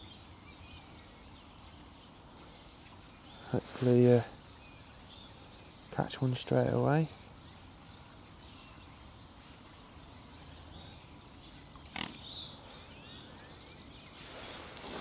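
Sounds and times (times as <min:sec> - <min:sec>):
distant birds chirping: 0:00.0 - 0:15.0
short rush of noise: 0:03.6 - 0:04.3.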